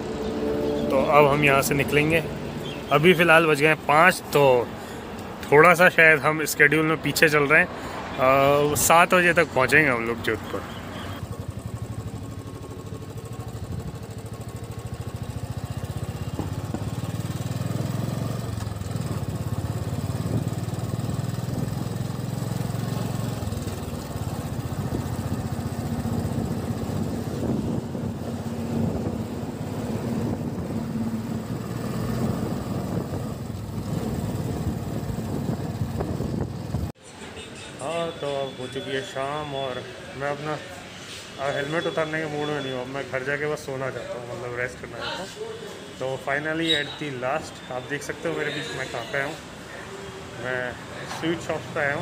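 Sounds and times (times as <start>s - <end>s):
motorcycle engine riding: 10.7s - 37.0s.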